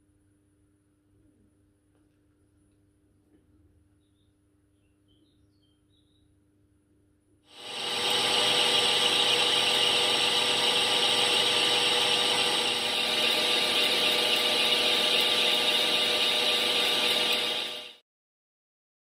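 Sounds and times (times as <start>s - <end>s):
metal lathe cutting metal: 7.5s - 18.0s.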